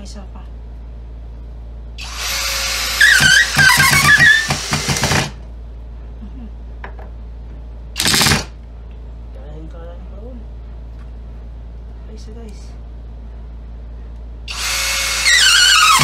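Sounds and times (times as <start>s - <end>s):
drill driving screw into wood: 2.0s - 5.4s, 8.0s - 8.5s, 14.5s - 16.0s.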